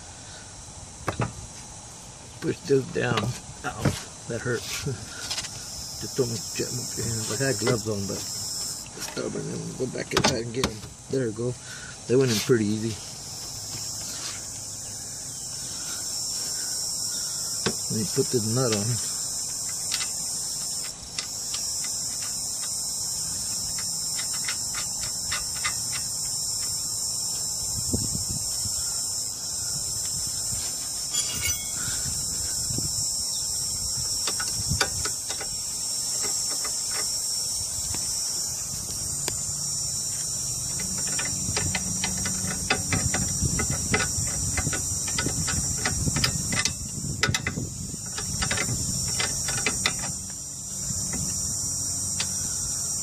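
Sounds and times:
insects chirping: 0.0 - 53.0
wrench clicking on metal: 23.7 - 26.8, 40.7 - 50.3.

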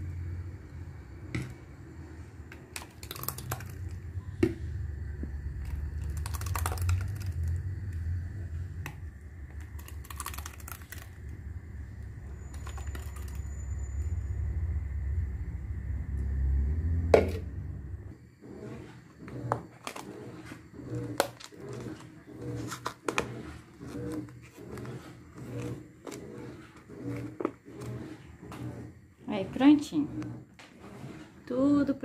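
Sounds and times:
low steady hum: 0.0 - 22.7.

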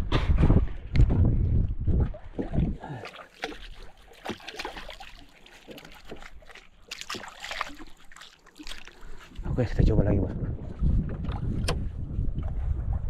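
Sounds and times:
hands splashing in seawater: 2.4 - 9.9.

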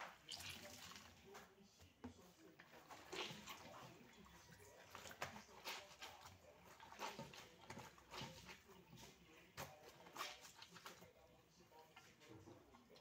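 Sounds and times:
wet towel squishing and rubbing: 0.0 - 13.0.

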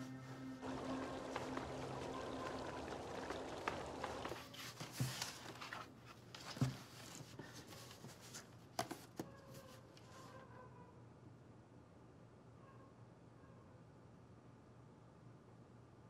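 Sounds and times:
soft background music: 0.0 - 4.2.

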